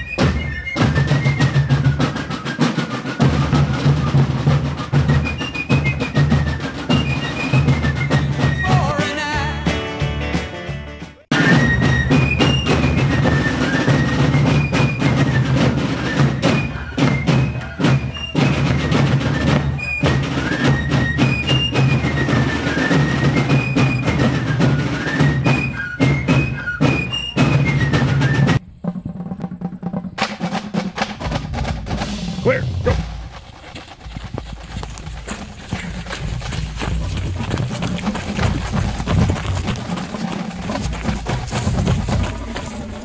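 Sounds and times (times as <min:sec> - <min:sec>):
outdoor background noise: 0:00.0 - 0:09.0, 0:09.7 - 0:43.0
snare and bass drums: 0:00.0 - 0:43.0
shrill fife melody: 0:08.0 - 0:11.3.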